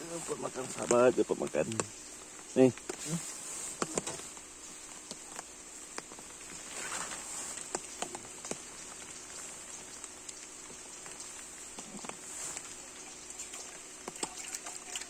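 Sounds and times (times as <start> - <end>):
light clicks and taps: 0.7 - 3.0, 3.7 - 6.6, 7.5 - 12.8.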